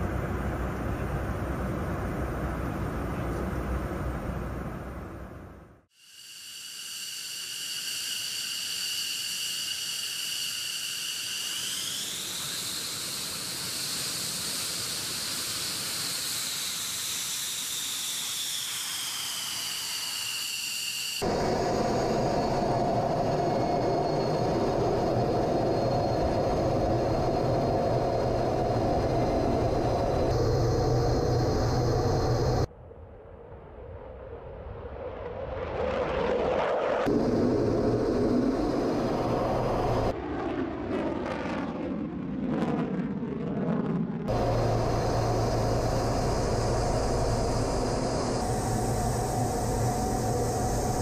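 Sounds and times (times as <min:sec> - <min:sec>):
jet engine rumble and rush: 0:00.0 - 0:05.9, 0:06.8 - 0:32.7, 0:33.4 - 0:51.0
jet engines whining: 0:06.3 - 0:32.7, 0:36.6 - 0:41.5, 0:44.2 - 0:51.0.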